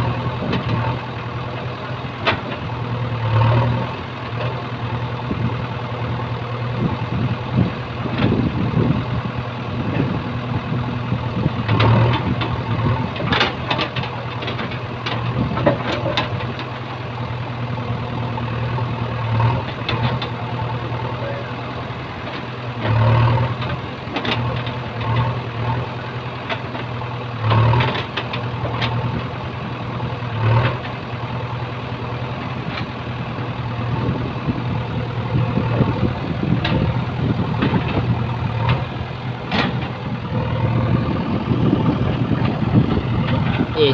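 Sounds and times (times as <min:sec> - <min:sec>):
diesel engine running: 0:00.0 - 0:43.9
knocks and clatter: 0:02.2 - 0:02.6, 0:11.6 - 0:16.8, 0:19.5 - 0:20.4, 0:22.2 - 0:25.4, 0:26.4 - 0:29.3, 0:35.3 - 0:43.8.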